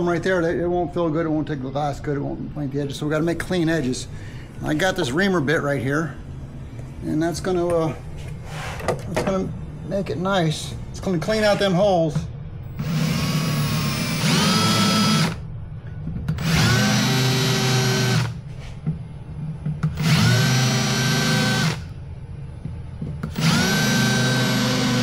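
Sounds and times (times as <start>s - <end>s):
cordless drill whining: 12.7s - 15.4s, 16.4s - 18.4s, 19.9s - 21.9s, 23.3s - 25.0s.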